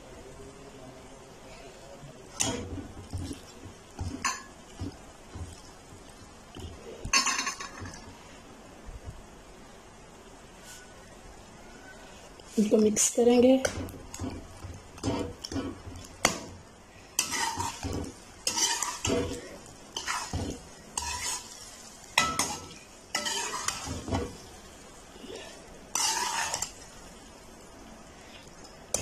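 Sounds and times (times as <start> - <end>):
metal spatula scraping metal pan: 13.6 - 16.4, 17.1 - 24.5, 25.9 - 26.8.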